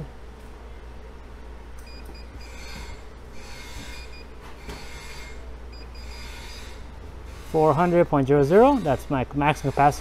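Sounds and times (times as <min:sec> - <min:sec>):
keypad beeps: 0:01.8 - 0:02.5.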